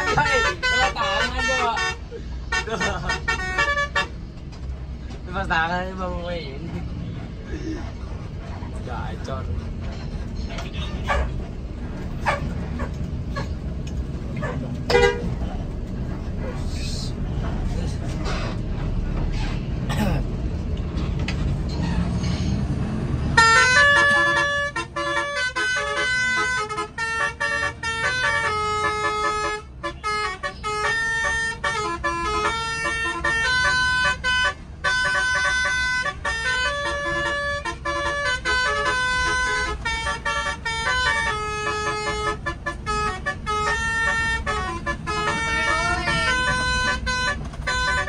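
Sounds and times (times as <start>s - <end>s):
musical air horn melody: 23.4s - 48.0s.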